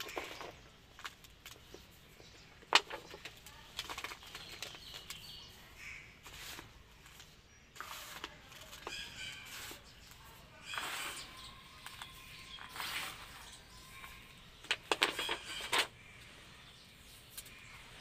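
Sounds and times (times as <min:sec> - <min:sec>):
sand sifted by hand: 0:06.2 - 0:13.8.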